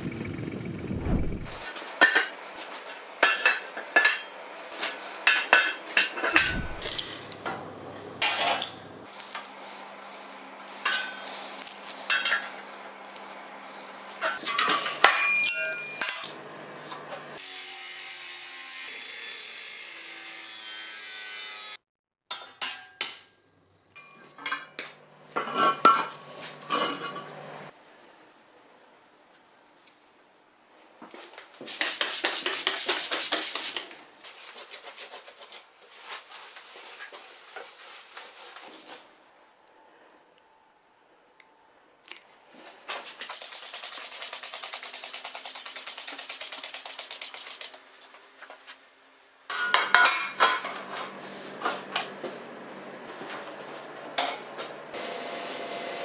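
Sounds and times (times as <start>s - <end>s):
metal tools clinking and knocking: 14.2s - 16.4s.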